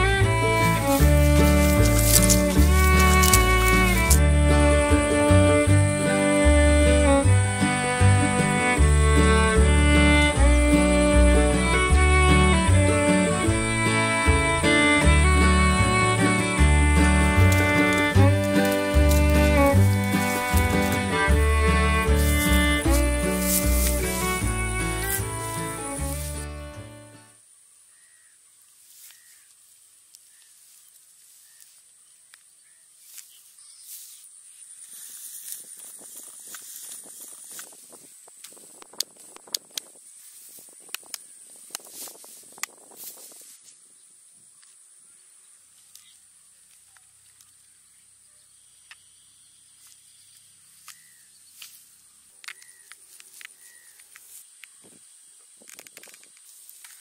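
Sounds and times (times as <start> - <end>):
steady high hiss: 0.0 - 57.0
clicks and taps of fruit handled: 1.0 - 4.3
high-pitched insect drone: 15.4 - 26.7
bird calling: 27.9 - 28.4, 29.0 - 29.5, 46.8 - 51.6, 52.4 - 54.1.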